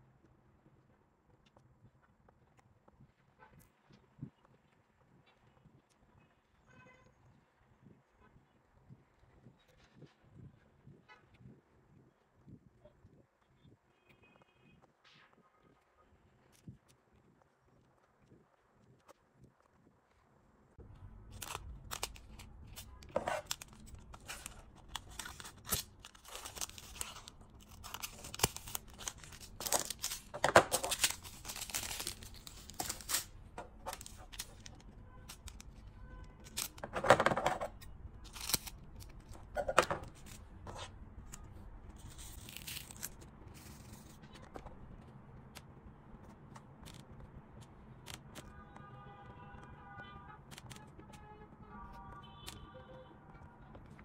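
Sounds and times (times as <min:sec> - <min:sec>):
plastic bag crinkling and tearing: 0:21.2 - 0:35.8, 0:36.4 - 0:40.4, 0:41.3 - 0:44.5.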